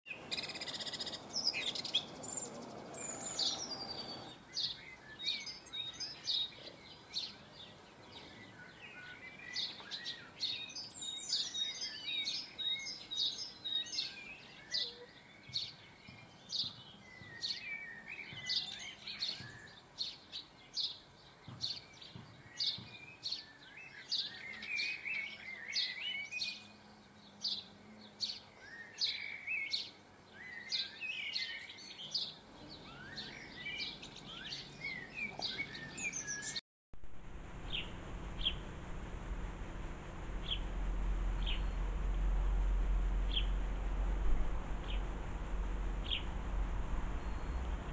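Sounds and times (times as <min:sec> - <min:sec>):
birds chirping: 0:00.1 - 0:36.6, 0:37.6 - 0:38.7, 0:40.4 - 0:47.9
soft bird twittering: 0:00.1 - 0:36.6, 0:41.4 - 0:42.0, 0:43.2 - 0:43.6, 0:46.0 - 0:46.4, 0:47.1 - 0:47.9
rushing noise: 0:37.0 - 0:47.9.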